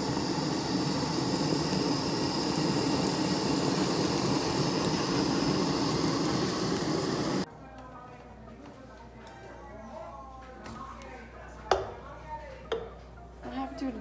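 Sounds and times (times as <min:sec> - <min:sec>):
gas flames hissing: 0:00.0 - 0:07.5.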